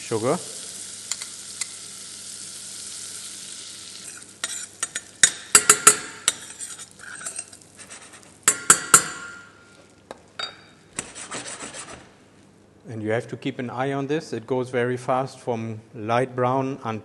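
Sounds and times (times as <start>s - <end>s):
butter sizzling: 0.0s - 10.4s
metal spoon scraping a saucepan: 4.0s - 9.5s.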